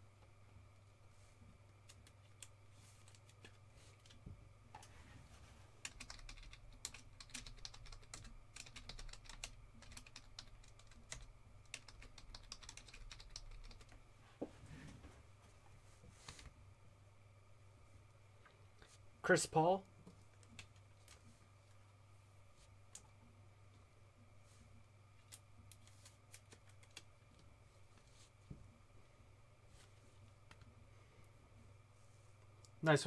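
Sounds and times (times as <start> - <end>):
low steady hum: 0.0 - 33.0
keyboard typing: 5.8 - 14.0, 25.8 - 27.1.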